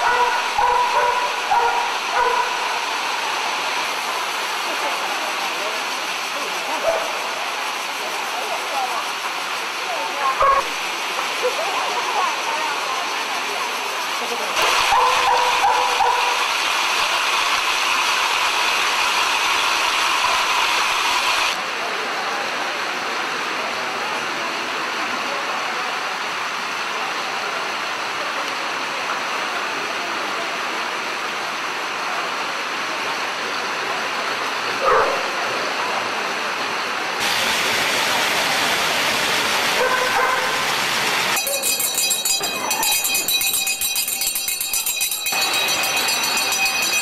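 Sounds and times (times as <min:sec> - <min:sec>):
dog bark: 0:00.0 - 0:02.8, 0:10.4 - 0:10.7, 0:14.8 - 0:16.4, 0:34.8 - 0:35.3, 0:39.8 - 0:40.6.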